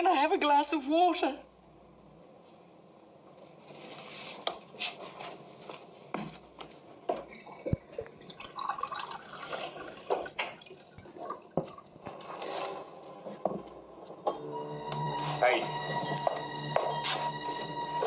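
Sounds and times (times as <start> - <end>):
tap water filling a glass: 7.7 - 11.9.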